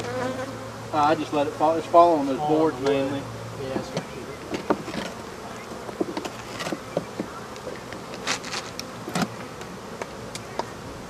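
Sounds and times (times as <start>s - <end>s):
bees buzzing: 0.0s - 11.0s
knocks and scrapes: 3.8s - 9.4s.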